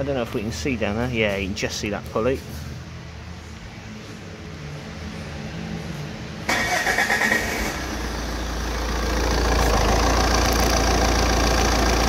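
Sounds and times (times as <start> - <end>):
car engine starting and idling: 5.8 - 12.0.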